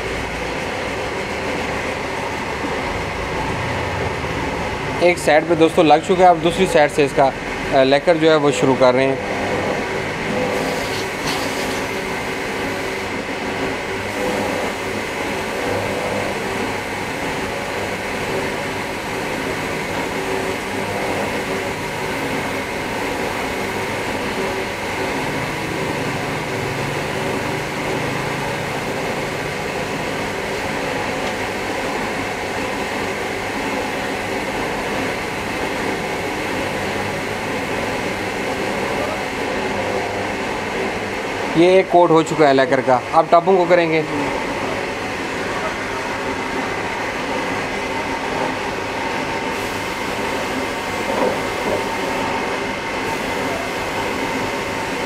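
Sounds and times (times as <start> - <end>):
spray gun hissing: 10.5 - 13.0, 49.5 - 52.2, 53.0 - 55.0
humming tones: 14.1 - 16.9.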